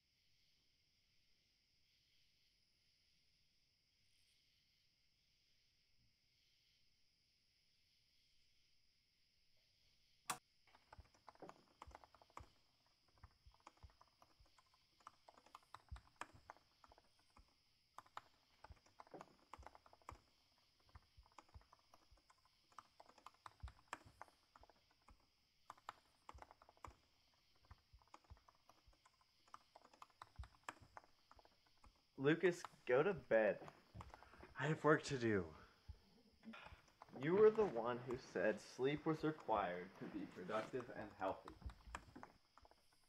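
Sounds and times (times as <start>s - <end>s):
laptop keyboard typing: 10.8s - 32.8s, 33.6s - 34.5s, 36.5s - 39.6s, 40.2s - 43.0s.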